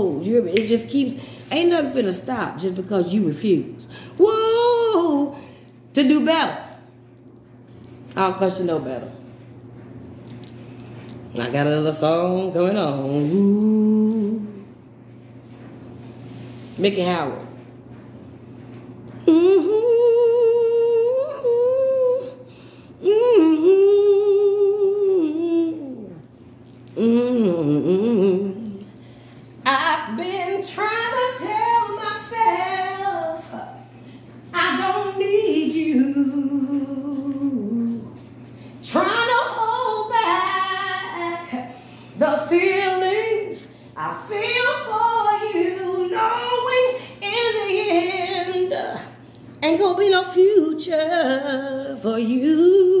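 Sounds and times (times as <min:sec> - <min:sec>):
woman singing unaccompanied: 0:00.0 - 0:06.6, 0:11.3 - 0:14.8, 0:19.2 - 0:26.3, 0:27.0 - 0:29.0, 0:29.6 - 0:53.0
woman humming: 0:13.0 - 0:14.7, 0:19.2 - 0:26.3, 0:26.9 - 0:29.0, 0:34.6 - 0:38.2.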